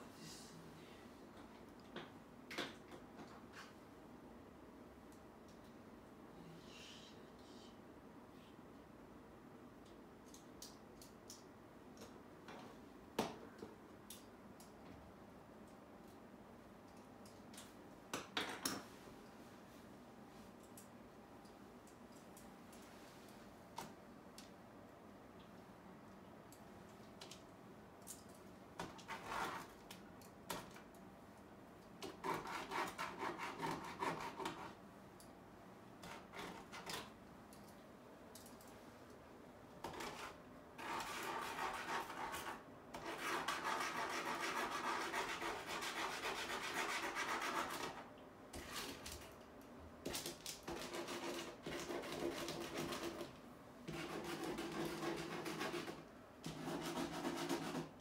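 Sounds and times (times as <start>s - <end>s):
paint marker scratching on wall: 28.8s - 29.8s, 32.0s - 34.8s, 36.0s - 37.1s, 39.8s - 49.0s, 50.2s - 58.0s.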